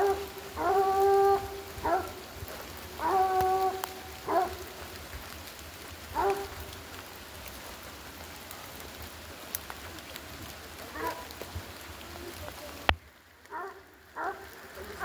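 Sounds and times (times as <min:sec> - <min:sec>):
dogs yelping: 0:00.0 - 0:02.2, 0:03.0 - 0:04.6, 0:06.2 - 0:06.5
steady background hiss: 0:00.0 - 0:15.0.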